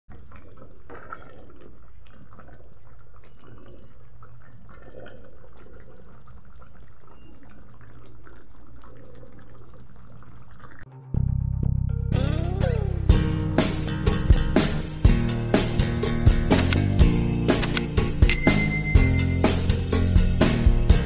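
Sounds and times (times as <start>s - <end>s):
stew bubbling in a pan: 0.1s - 10.9s.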